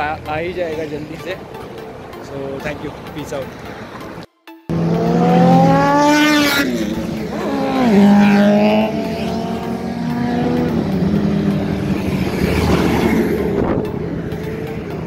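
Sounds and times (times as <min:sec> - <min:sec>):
motorbike engine revving: 0:04.7 - 0:15.0.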